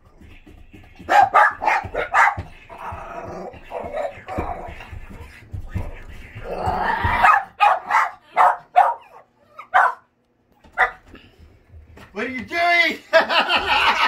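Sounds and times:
small dogs barking: 1.0 - 4.7, 6.4 - 11.1.

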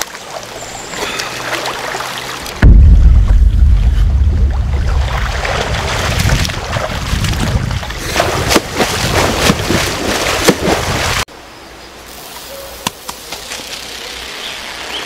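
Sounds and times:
sharp splashes: 0.0 - 11.3
river water running and splashing: 0.0 - 12.5.

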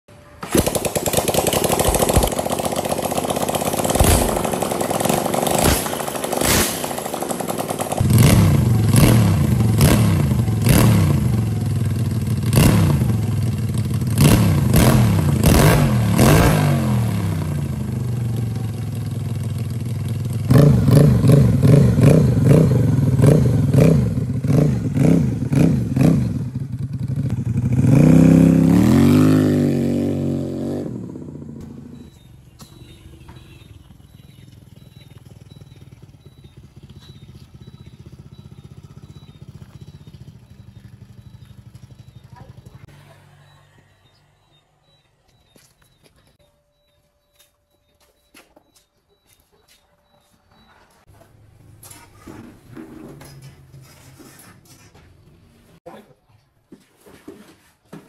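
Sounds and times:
scooter engine revving: 0.3 - 45.6.

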